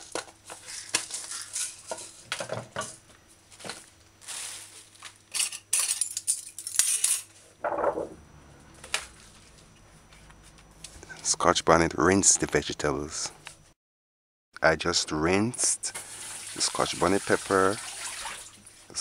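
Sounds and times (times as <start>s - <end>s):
rustling: 3.8s - 5.1s
metal spoons and jars clinking: 5.3s - 7.3s.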